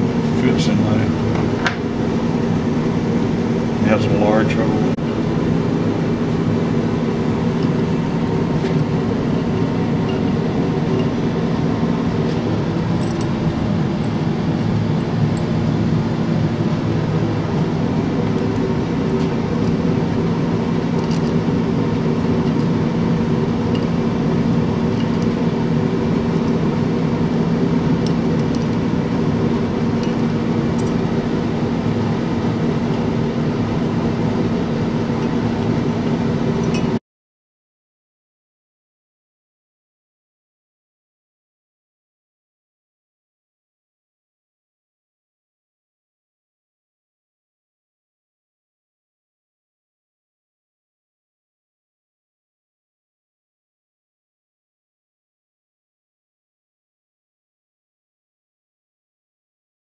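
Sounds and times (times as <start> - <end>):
steady machine hum: 0.0 - 37.0.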